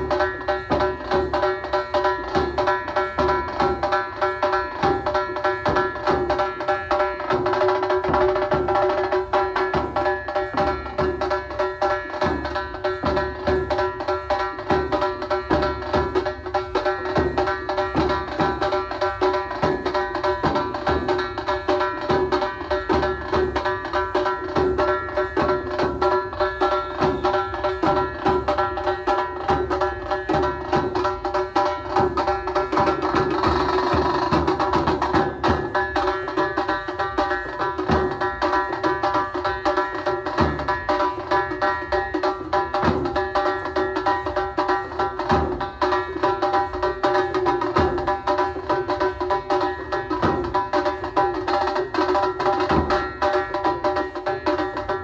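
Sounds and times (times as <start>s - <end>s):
fast drumming on large drums: 0.0s - 55.0s.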